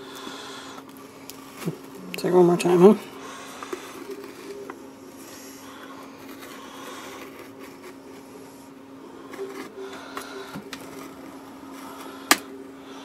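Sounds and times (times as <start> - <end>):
steady low hum: 0.0 - 13.0
adhesive crackling and scraping: 2.8 - 8.6, 9.2 - 12.5.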